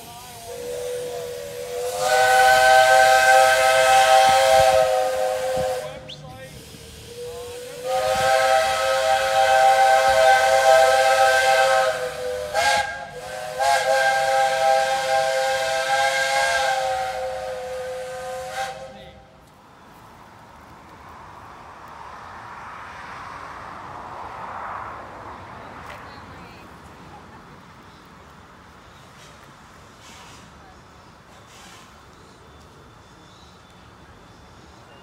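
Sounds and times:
steam hissing: 0.0 - 19.2, 29.0 - 30.6, 31.3 - 32.2
steam locomotive whistle chord: 0.4 - 6.1, 7.0 - 19.0.

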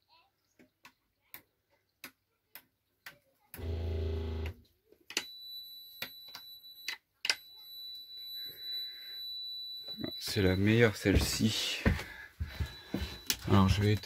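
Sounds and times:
low electrical buzz: 3.6 - 4.6.

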